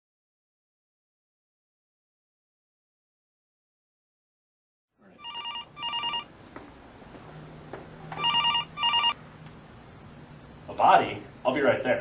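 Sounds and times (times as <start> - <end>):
telephone ringing: 5.2 - 6.3, 8.2 - 9.2.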